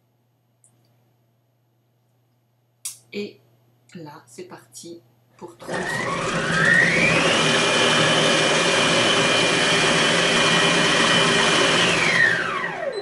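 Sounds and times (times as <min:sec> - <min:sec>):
food processor motor whine: 0:05.6 - 0:13.0.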